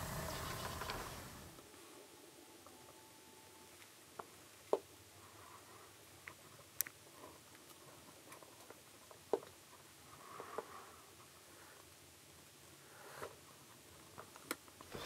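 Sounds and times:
sharp clicks and snaps: 6.2 - 7.8.

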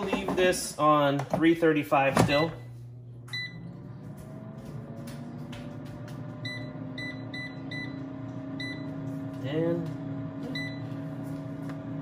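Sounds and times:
fan motor humming: 0.0 - 12.0
control panel beeps: 3.3 - 3.7, 6.4 - 9.0, 10.6 - 10.9.

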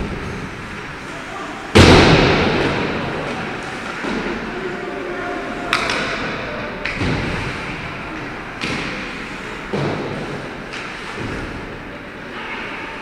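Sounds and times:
rink hall hum: 0.0 - 13.0
hockey puck cracking against boards: 5.7 - 7.6, 8.6 - 11.6.

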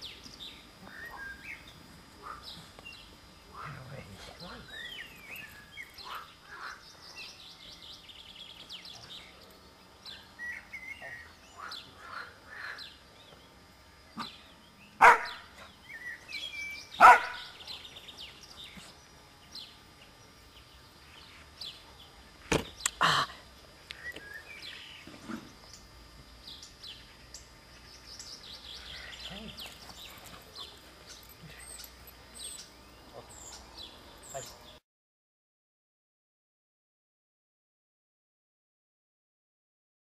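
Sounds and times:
birds chirping and singing: 0.0 - 23.0, 23.9 - 34.8
puppy barking: 15.0 - 15.4, 17.0 - 17.5.

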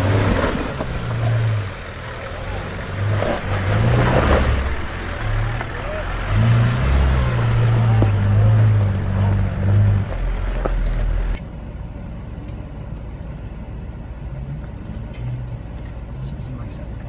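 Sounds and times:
off-road engine revving: 0.0 - 11.4
engine drone inside vehicle: 0.0 - 17.0.

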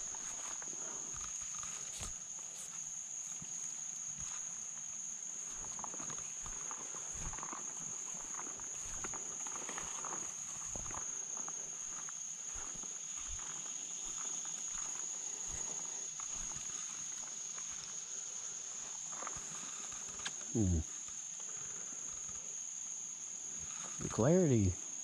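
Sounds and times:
footsteps through brush: 0.0 - 18.0
high-pitched insect drone: 0.0 - 25.0.

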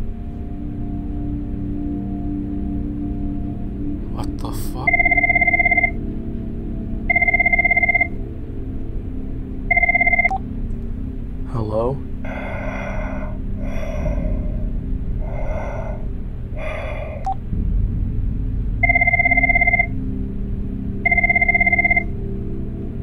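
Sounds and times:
mobile phone ringing: 4.9 - 6.0, 7.1 - 8.1, 9.7 - 10.4, 18.9 - 19.9, 21.1 - 22.1
phone line click: 9.7 - 10.4, 21.1 - 22.1
heavy breathing over phone: 12.2 - 17.4.

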